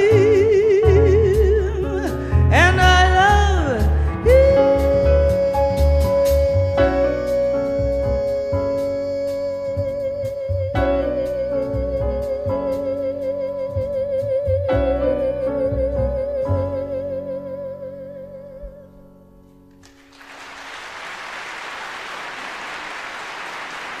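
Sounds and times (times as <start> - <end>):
audience applause: 19.8 - 24.0.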